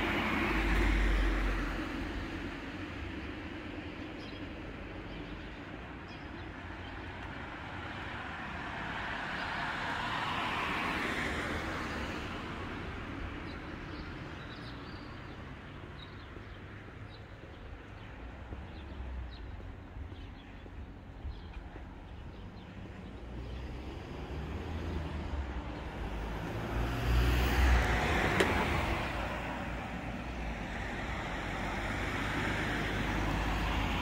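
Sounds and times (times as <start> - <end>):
vehicle passing by: 23.2 - 34.0.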